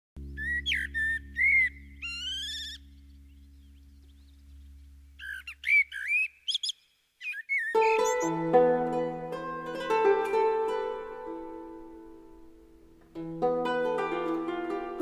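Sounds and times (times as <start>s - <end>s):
low steady hum: 0.2s - 6.0s
high whistled bird-like calls: 0.4s - 4.3s, 5.2s - 8.3s.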